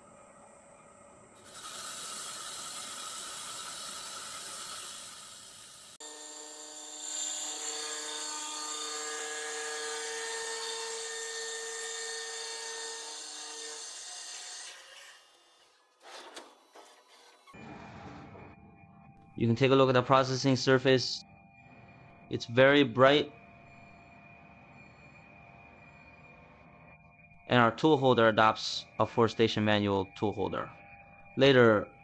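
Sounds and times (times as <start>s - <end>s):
high-pitched machine whine: 0.0s - 13.9s, 17.5s - 32.0s
lathe cutting hiss: 1.4s - 9.0s.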